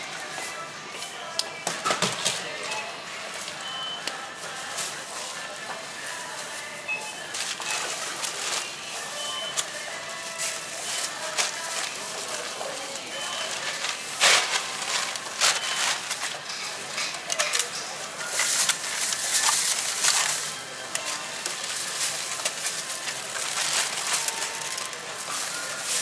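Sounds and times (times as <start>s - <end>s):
plastic bag rustling: 2.0s - 26.0s.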